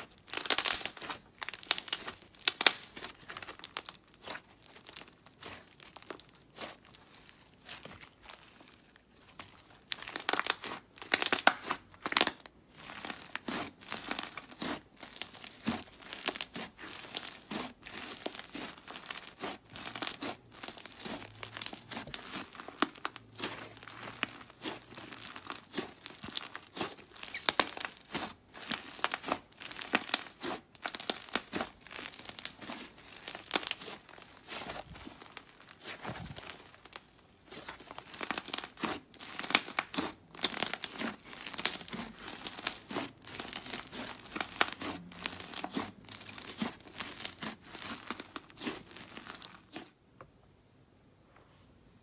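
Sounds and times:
clay slime crackling and popping: 0.0 - 50.4.

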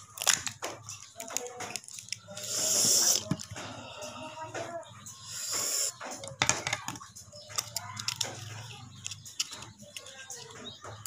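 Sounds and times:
crab shell cracking: 0.0 - 3.6.

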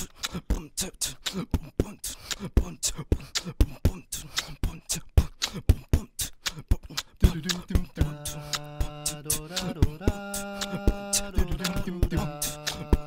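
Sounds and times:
beatboxing beat: 0.0 - 13.0
low held vocal hum: 7.2 - 13.0.

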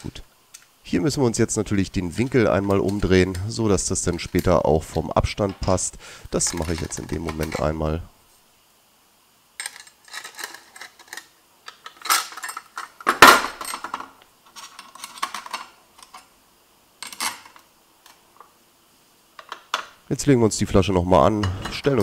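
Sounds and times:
metal parts clinking and rattling: 2.2 - 3.4, 6.4 - 7.7, 9.6 - 16.3, 17.0 - 18.2.

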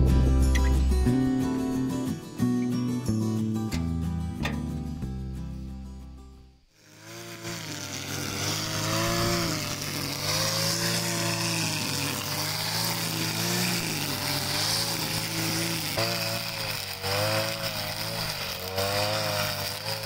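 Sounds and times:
guitar music: 0.0 - 6.7
brush cutter engine cutting grass: 6.7 - 20.0.

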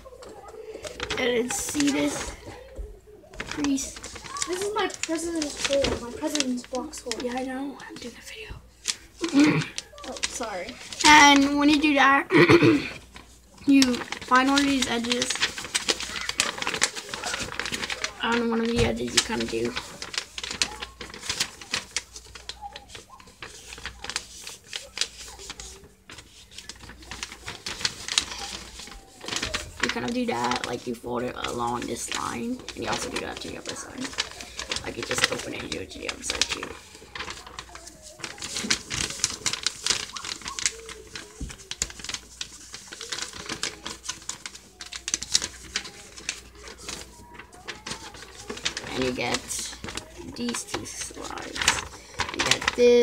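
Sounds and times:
paper being folded: 0.0 - 53.0.

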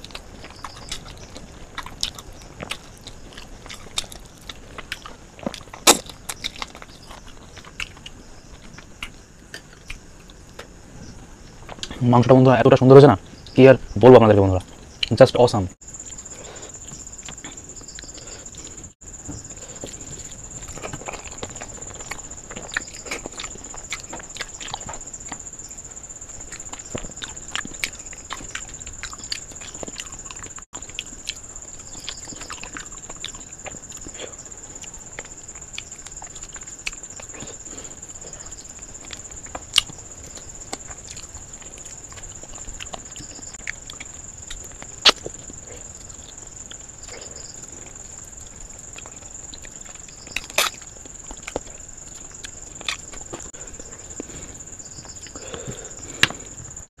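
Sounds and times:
wet chewing: 0.0 - 10.8, 15.9 - 56.8
lip smacks: 32.0 - 47.5, 48.9 - 54.3.

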